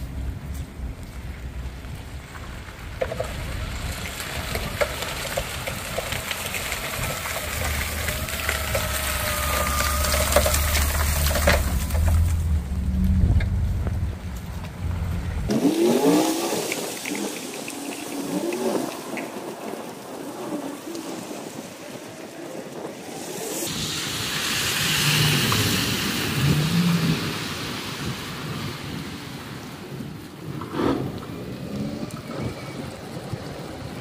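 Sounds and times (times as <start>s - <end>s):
salt hissing and ticking on ice: 0.5s - 12.6s, 15.5s - 29.0s
salt spreader whine: 6.2s - 13.6s, 22.3s - 28.6s.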